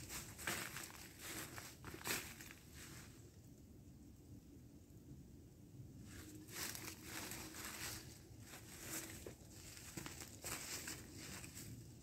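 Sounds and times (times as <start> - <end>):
footsteps crunching dry leaves: 0.0 - 3.2, 6.1 - 12.0.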